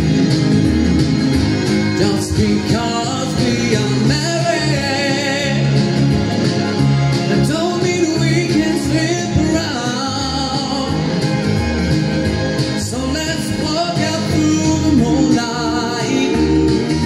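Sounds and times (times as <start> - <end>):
backing music with guitar: 0.0 - 17.0
man singing country song: 2.0 - 6.0, 7.3 - 11.2, 12.8 - 16.7.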